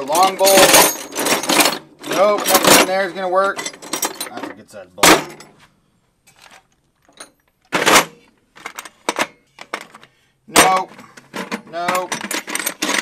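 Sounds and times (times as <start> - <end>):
bolts and nuts rattling in toolbox: 0.0 - 5.6, 6.3 - 13.0.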